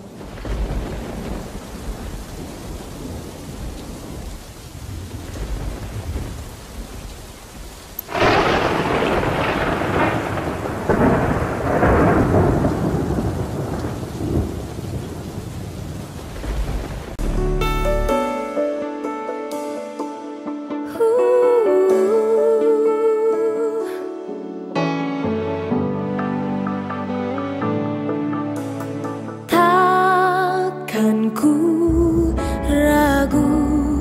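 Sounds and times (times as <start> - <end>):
loud thunderclap: 0.0 - 17.2
rumbling thunder: 0.0 - 17.4
steady rain: 0.0 - 17.6.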